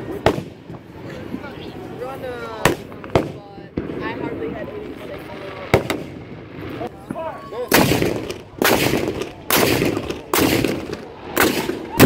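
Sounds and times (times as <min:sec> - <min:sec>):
cannon booms with rumble: 0:07.7 - 0:11.8.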